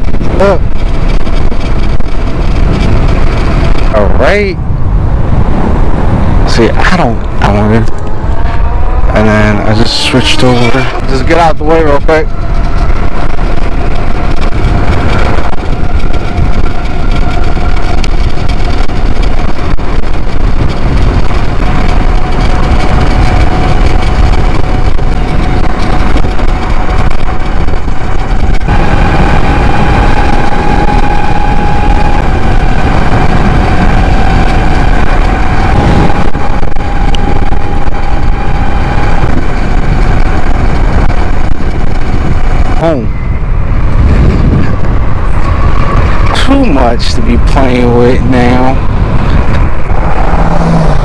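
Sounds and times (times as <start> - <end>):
electric motor whining: 0.0 - 51.0
wind noise on microphone: 0.0 - 51.0.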